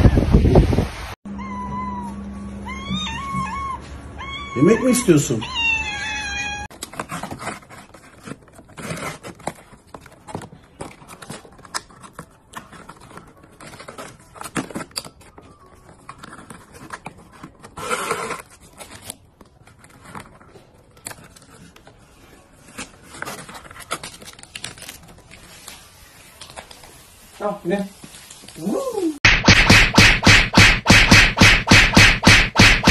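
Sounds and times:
cardboard and ribbon rustling: 0:06.7 - 0:28.8.

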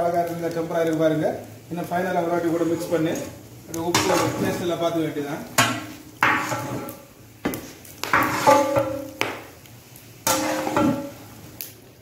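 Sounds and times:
ladle knocking and scraping pot: 0:05.6 - 0:07.0, 0:08.0 - 0:09.3, 0:10.3 - 0:11.2.

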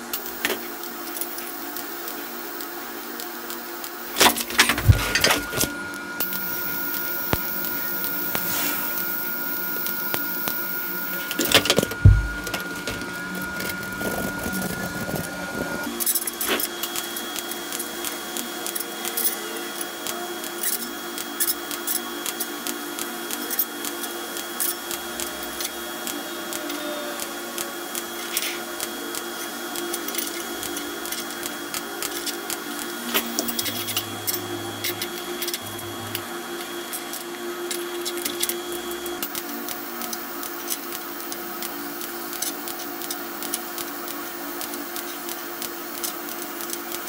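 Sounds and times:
workshop hum: 0:00.0 - 0:47.0
abrasive pad rubbing metal: 0:04.4 - 0:15.9.

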